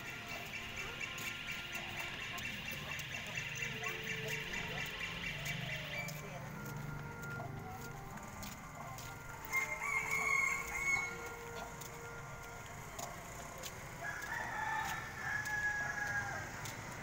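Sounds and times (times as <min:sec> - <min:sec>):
roosters crowing: 0:09.4 - 0:11.5, 0:14.0 - 0:16.7.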